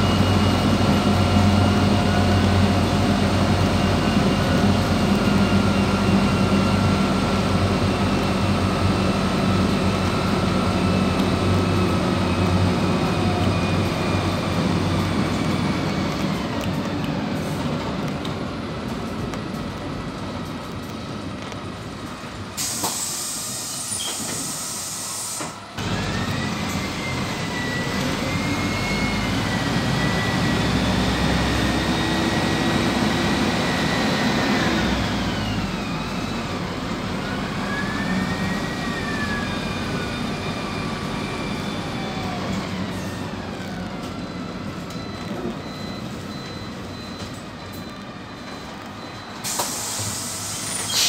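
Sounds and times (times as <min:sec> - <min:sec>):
bus engine pulling away: 0:00.0 - 0:51.0
compressed air hiss: 0:22.6 - 0:25.6, 0:49.4 - 0:51.0.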